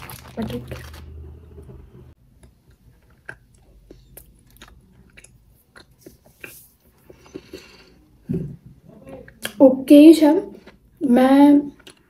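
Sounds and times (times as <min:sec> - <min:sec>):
person chewing with mouth clicks: 0:02.3 - 0:08.0, 0:11.7 - 0:12.0.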